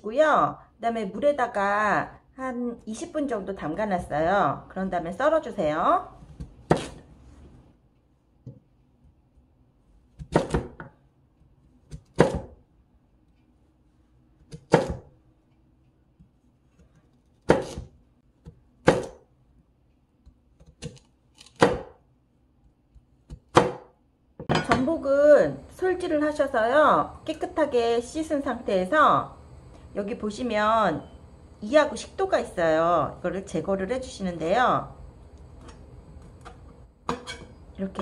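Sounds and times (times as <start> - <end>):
knife slicing on cutting board: 6.7 - 7.1.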